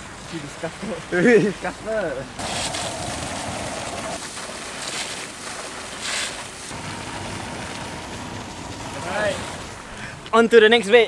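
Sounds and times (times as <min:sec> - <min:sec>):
short bursts of noise: 0:02.4 - 0:04.3.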